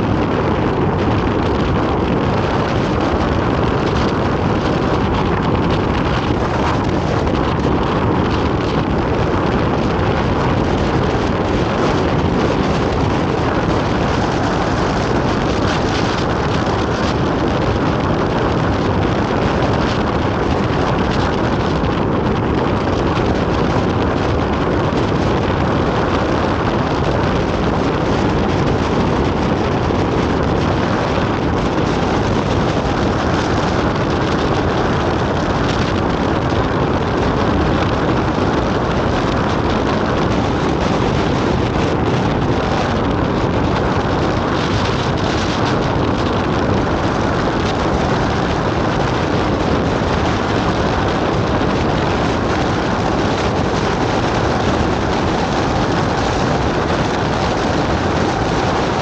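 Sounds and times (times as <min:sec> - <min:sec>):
vehicle driving: 0:00.0 - 0:59.0
wind buffeting microphone: 0:00.0 - 0:59.0.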